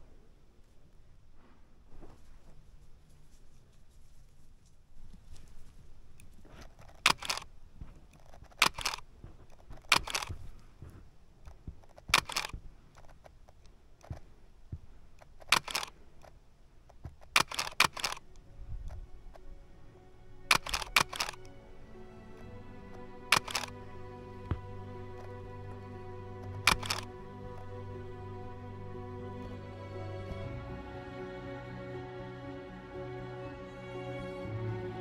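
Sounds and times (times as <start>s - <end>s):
camera shutter clicks: 6.9s - 7.5s, 8.4s - 9.0s, 9.8s - 10.3s, 12.1s - 12.6s, 15.5s - 15.9s, 17.3s - 18.2s, 20.5s - 21.6s, 22.4s - 27.8s.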